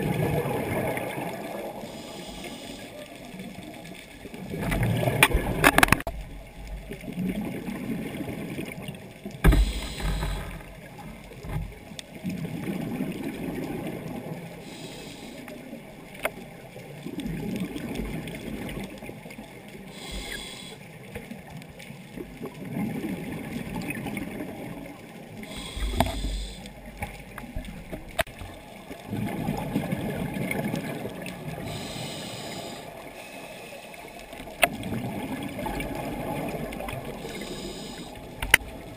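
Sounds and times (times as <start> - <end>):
regulator breath hiss: 1.8 - 3.0, 9.5 - 10.6, 14.6 - 15.5, 19.9 - 20.8, 25.5 - 26.7, 31.6 - 34.0, 37.2 - 38.3
bubbling rumble: 3.7 - 11.6, 27.2 - 31.9, 34.5 - 38.9.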